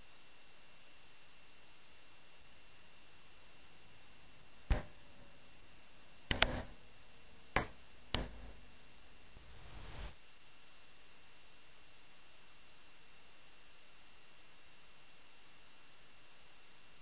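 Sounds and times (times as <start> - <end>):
sharp short clicks: 6.3 - 6.8, 7.6 - 8.6.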